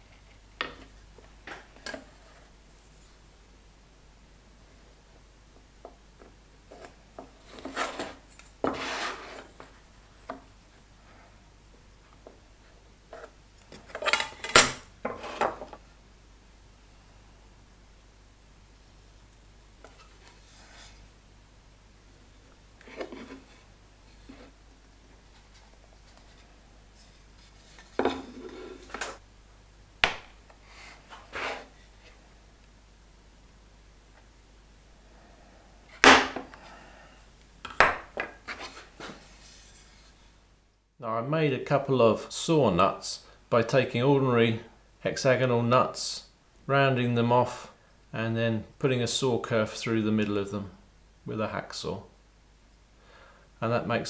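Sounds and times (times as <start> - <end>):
wood scraping on workbench: 6.7 - 9.6, 15.0 - 15.7, 27.6 - 29.2, 30.8 - 31.8
metal tool scraping wood: 7.5 - 9.6.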